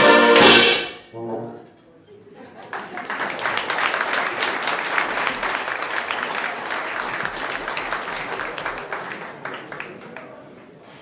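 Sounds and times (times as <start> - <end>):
audience applauding: 2.5 - 10.8.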